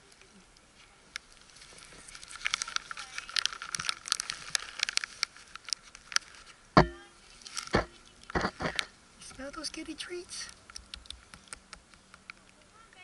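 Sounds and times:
plastic bag crinkling: 1.5 - 6.6.

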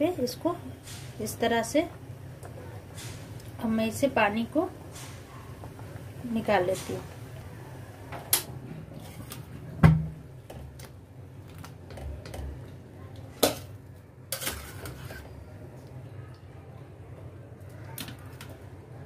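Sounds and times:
metal spoon scraping a pot: 14.3 - 15.4.

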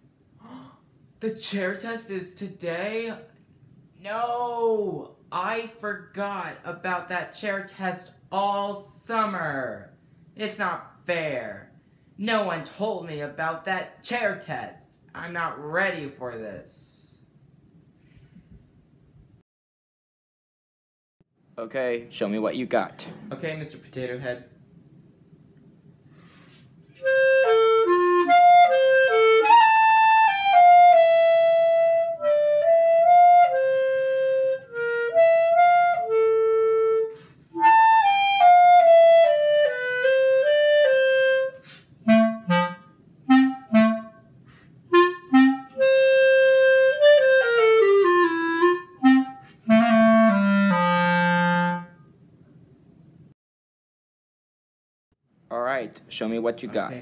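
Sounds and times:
solo clarinet melody: 27.0 - 44.3, 44.9 - 52.2.

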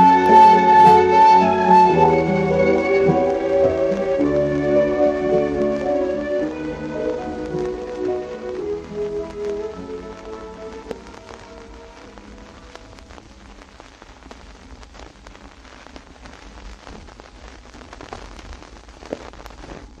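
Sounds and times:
song music: 0.0 - 13.1
vinyl crackle and pops: 0.0 - 20.0.

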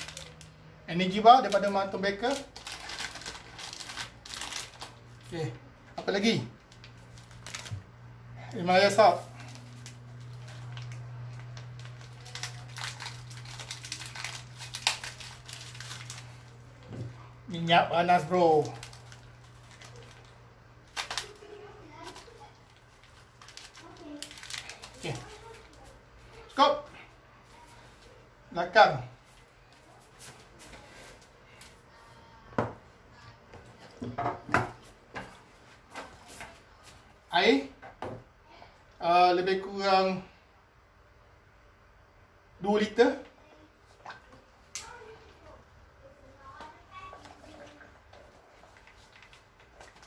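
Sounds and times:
fabric rustling and crinkling: 1.3 - 5.3, 9.0 - 17.3, 46.5 - 50.0.

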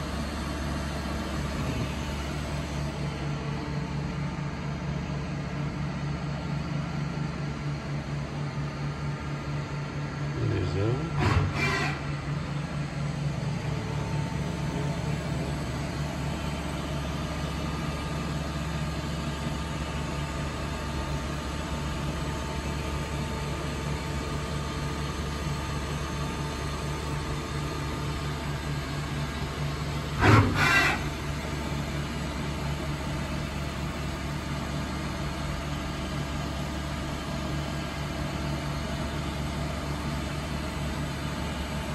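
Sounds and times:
machine mechanical hum: 0.0 - 41.9
loud double clunk: 11.2 - 12.2, 30.2 - 31.2.

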